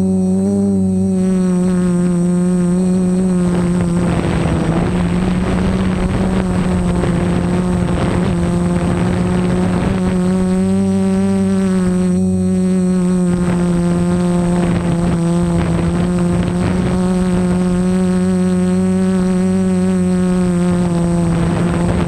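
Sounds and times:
drone propellers humming: 0.0s - 22.0s
rushing noise: 1.1s - 18.0s.

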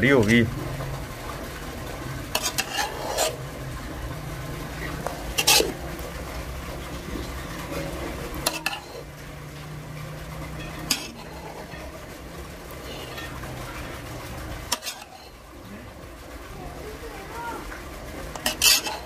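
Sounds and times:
metal spoon scraping a pot: 2.3s - 3.6s, 4.7s - 6.0s, 6.8s - 9.6s, 10.4s - 14.0s, 14.6s - 15.4s, 18.3s - 19.0s.

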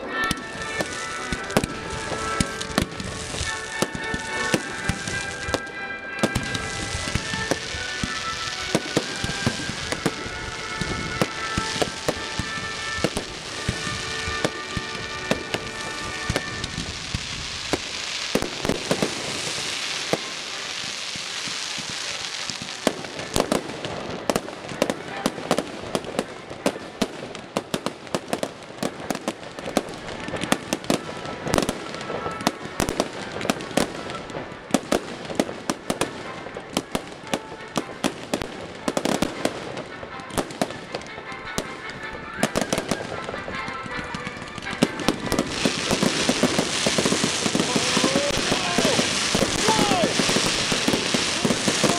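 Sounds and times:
music-like tones: 0.0s - 21.6s, 22.4s - 51.9s
fireworks bangs and pops: 0.0s - 51.9s
fireworks crackling: 0.0s - 51.9s.

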